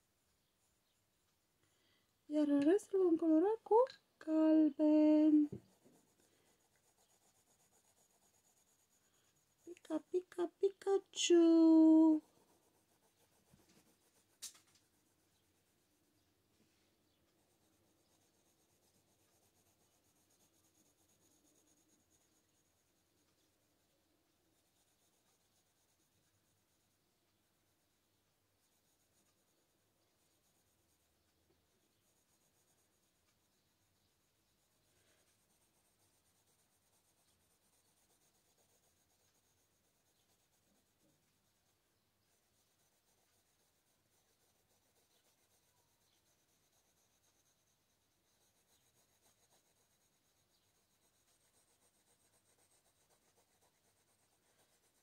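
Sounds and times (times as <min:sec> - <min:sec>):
pencil scratching on paper: 0:04.3 - 0:55.0.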